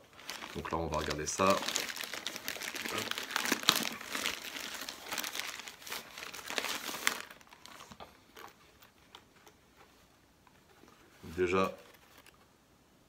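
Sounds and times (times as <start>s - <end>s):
plastic packaging crinkling: 0.0s - 10.0s
faint handling sounds: 0.0s - 12.6s.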